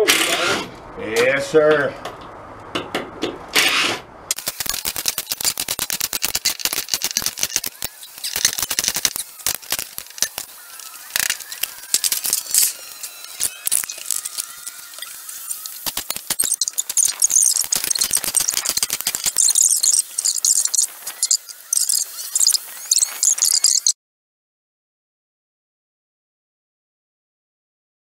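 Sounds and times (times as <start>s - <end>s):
short high squeaks: 6.2s - 23.9s.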